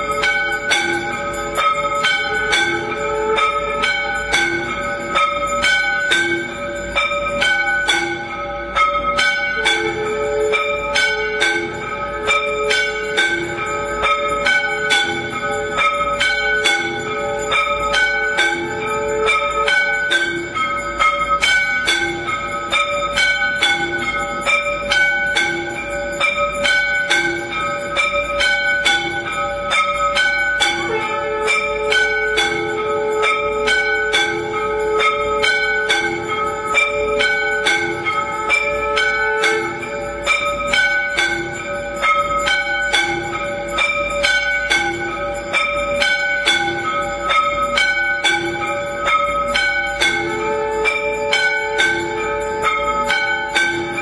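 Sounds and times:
temple bells ringing rapidly: 0:00.0 - 0:54.0.

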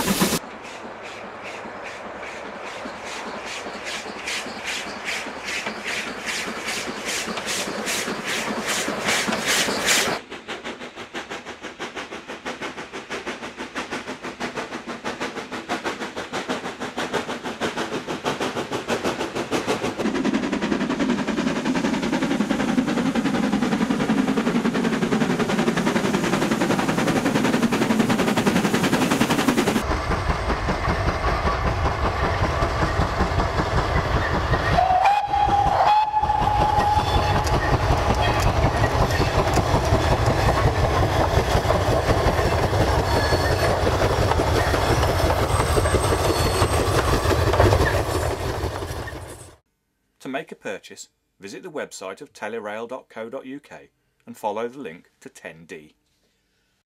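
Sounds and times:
steam locomotive exhaust beats: 0:00.0 - 0:49.6
steam whistle blowing: 0:34.7 - 0:37.6.

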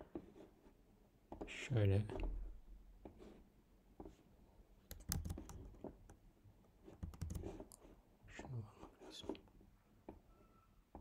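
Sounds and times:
computer mouse clicking: 0:04.9 - 0:06.2, 0:07.0 - 0:07.8.

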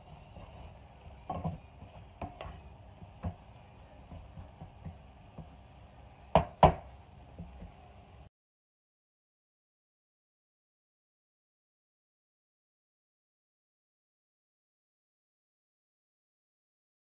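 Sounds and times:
wooden spatula scraping a pot: 0:00.0 - 0:05.6.

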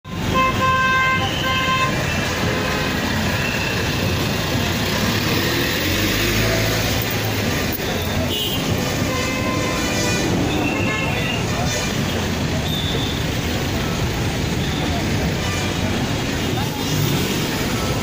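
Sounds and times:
vehicle horn: 0:00.3 - 0:02.1, 0:08.2 - 0:11.4
vehicles moving slowly past: 0:01.2 - 0:18.0.

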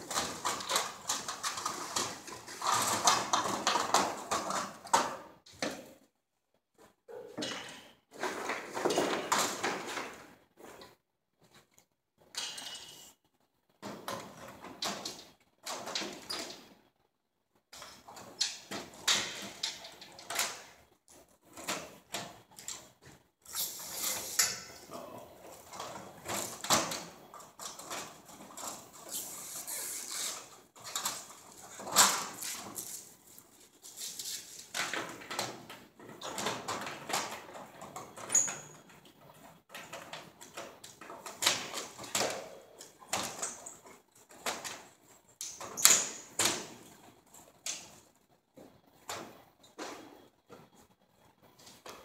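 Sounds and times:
tubes clicking and knocking: 0:00.0 - 0:06.1, 0:06.7 - 0:52.0.

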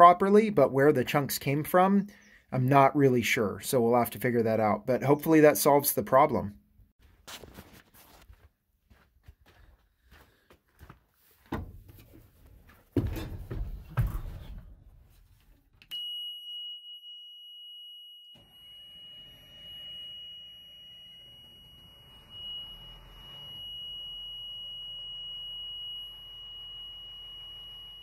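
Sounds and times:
clunks and knocks in truck cab: 0:11.5 - 0:12.1, 0:12.9 - 0:14.6
shrill warning buzzer: 0:17.9 - 0:28.0.

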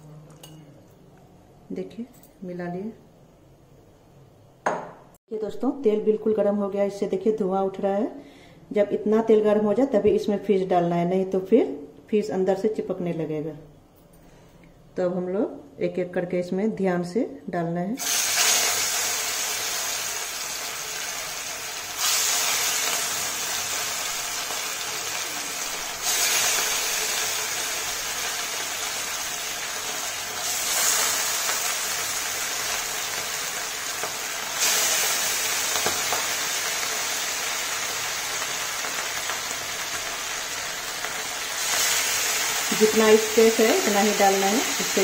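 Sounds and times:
fish sizzling in hot oil: 0:18.0 - 0:45.0.

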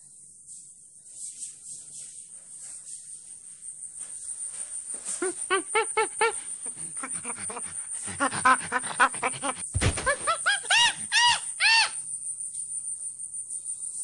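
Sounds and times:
crickets trilling: 0:00.0 - 0:14.0
monkey hooting and whooping: 0:05.2 - 0:12.0
thump: 0:09.7 - 0:10.3.

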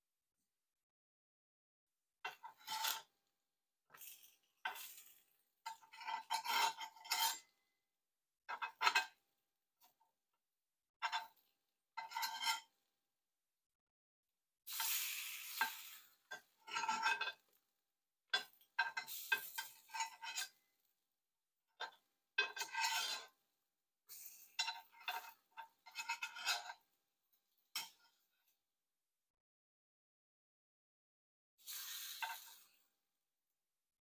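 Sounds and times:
dishes and utensils clattering: 0:24.5 - 0:26.8.

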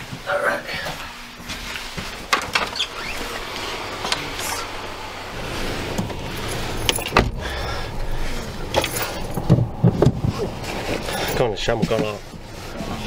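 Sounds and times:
heavy thump: 0:05.3 - 0:10.8
keys jangling: 0:06.4 - 0:07.4, 0:08.7 - 0:09.7.

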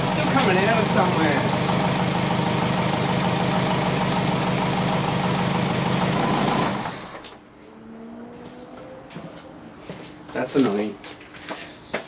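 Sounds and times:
exhaust leaking: 0:00.0 - 0:07.0
car engine idling: 0:00.0 - 0:07.2.

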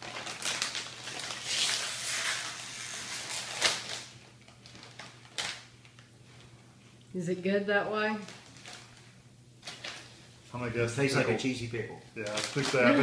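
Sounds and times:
crinkly chip bag crackling: 0:00.0 - 0:06.5, 0:08.2 - 0:10.2, 0:12.2 - 0:13.0.

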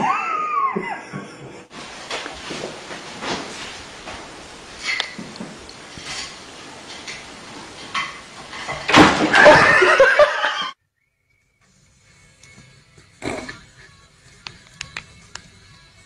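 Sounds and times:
crash and clatter on table: 0:07.9 - 0:09.8.

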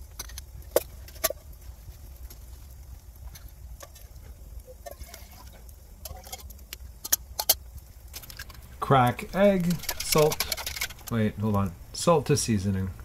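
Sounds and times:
low steady rumble: 0:00.0 - 0:13.0
metal cup and bottle clinking: 0:08.2 - 0:08.7, 0:09.6 - 0:11.2.

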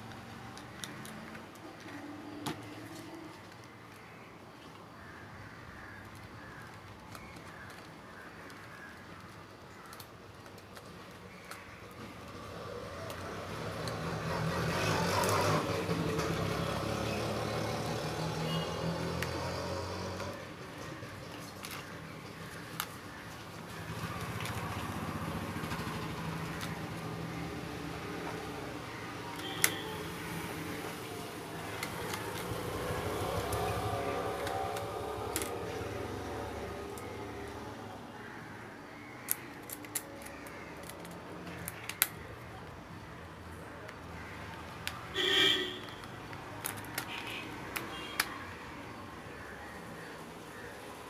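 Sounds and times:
plastic toy parts clicking: 0:00.0 - 0:02.8, 0:06.0 - 0:12.4, 0:21.2 - 0:23.0, 0:25.6 - 0:27.0, 0:28.1 - 0:30.7, 0:31.6 - 0:36.1, 0:39.2 - 0:42.8, 0:43.9 - 0:45.1, 0:45.8 - 0:48.4
plastic clicks and taps: 0:33.4 - 0:35.8, 0:45.8 - 0:48.4.

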